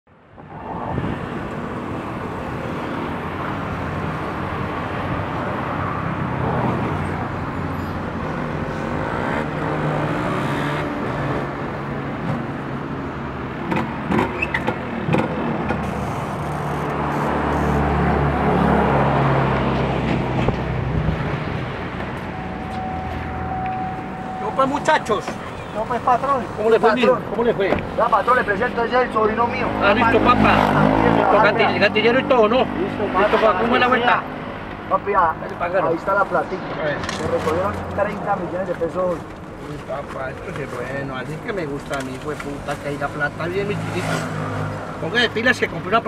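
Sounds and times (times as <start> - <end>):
vehicle engines running: 13.4 - 46.0.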